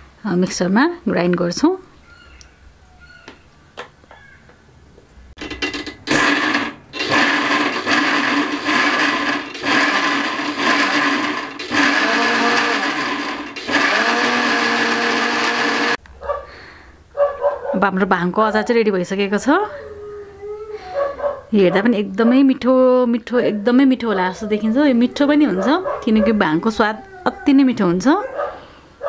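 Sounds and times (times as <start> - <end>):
mixer grinder motor: 5.4 - 16.0.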